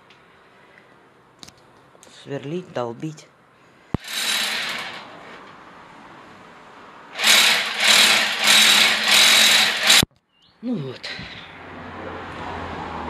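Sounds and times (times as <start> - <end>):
hammer drill boring into wall: 4.0 - 5.2, 7.2 - 10.1.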